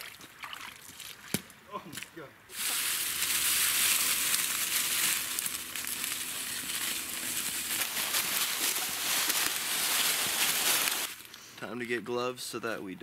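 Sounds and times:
footsteps crunching dry leaves: 2.0 - 11.3.

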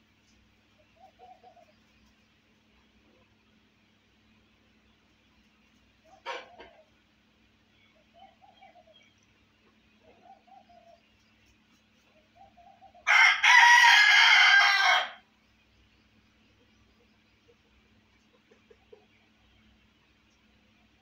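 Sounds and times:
rooster clucking: 6.0 - 7.0, 17.4 - 19.4
rooster crowing: 13.0 - 15.2.

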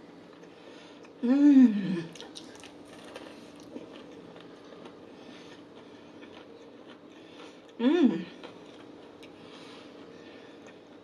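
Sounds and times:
person humming: 1.2 - 2.2, 7.8 - 8.3
crunching and chewing fried chicken: 2.0 - 11.0.

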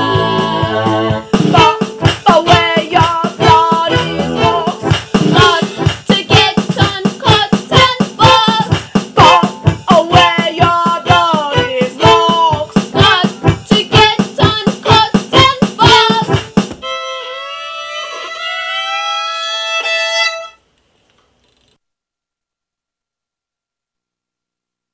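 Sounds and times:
band music with driving beat: 0.0 - 16.9.

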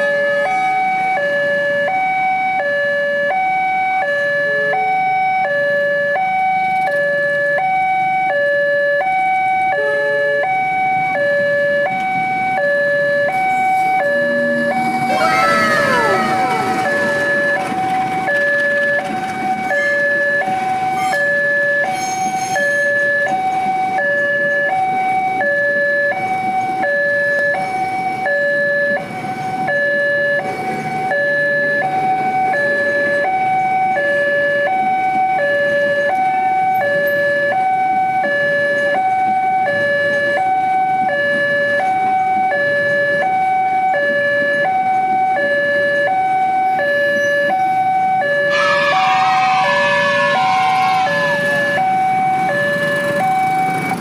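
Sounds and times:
level crossing two-tone warning signal: 0.0 - 21.9, 22.6 - 54.0
train rumble: 10.6 - 28.2, 34.8 - 54.0
locomotive horn: 13.3 - 18.8, 19.6 - 23.1, 48.2 - 53.3.

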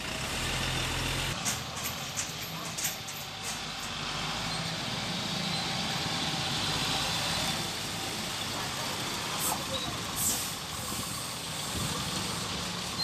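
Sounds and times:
road traffic noise: 0.0 - 13.0
vehicle engines idling: 0.0 - 13.0.

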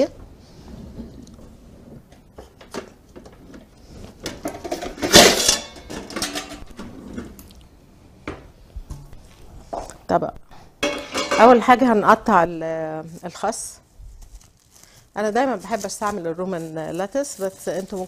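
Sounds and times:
metal pans clattering: 4.3 - 6.9, 10.8 - 11.8.

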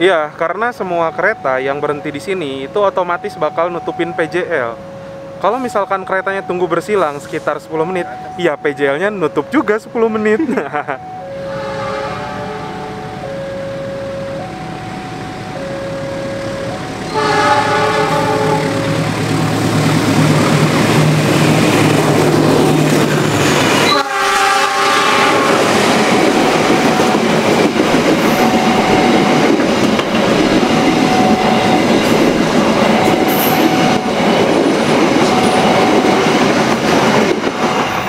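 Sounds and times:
train carriages rushing past: 9.7 - 38.0
locomotive horn: 11.3 - 19.6, 23.8 - 27.6, 28.2 - 34.3, 35.2 - 36.2.

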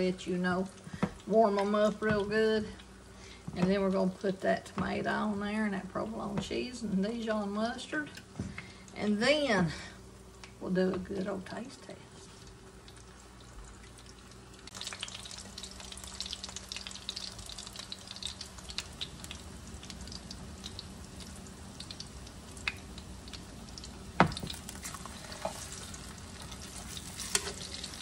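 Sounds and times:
meat sizzling in a skillet: 14.7 - 28.0
fork scraping a pan: 26.7 - 27.9.

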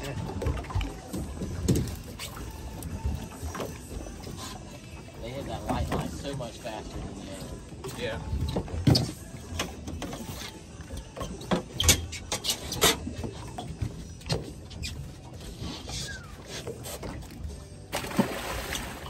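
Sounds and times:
boat low rumble: 0.0 - 19.0
clicks and knocks from fishing gear: 0.2 - 4.0.

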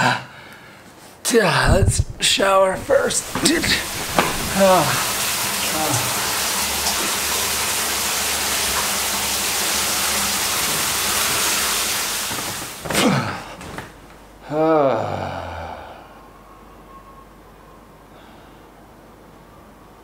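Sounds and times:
shower spraying: 1.7 - 12.9
man sighing: 14.4 - 16.2.

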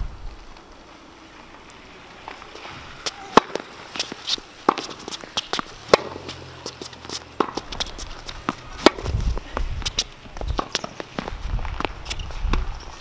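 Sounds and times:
racket striking tennis ball: 2.2 - 9.2, 9.8 - 11.3
tennis ball bouncing: 2.2 - 12.7
shoe steps on court: 2.2 - 13.0.

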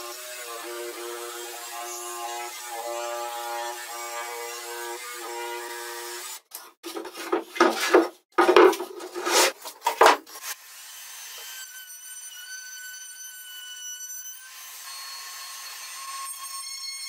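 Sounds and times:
jigsaw cutting wood: 0.0 - 6.5
plywood pieces scraping and knocking: 6.8 - 10.4.

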